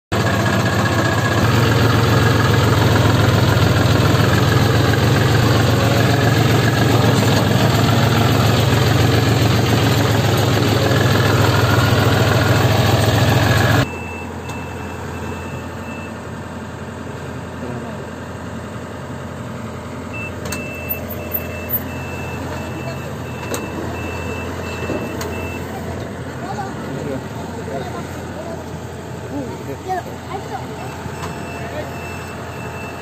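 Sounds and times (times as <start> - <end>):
heavy diesel engine running: 0.1 - 33.0
short high beeps: 13.8 - 16.2, 20.2 - 25.7, 30.8 - 33.0.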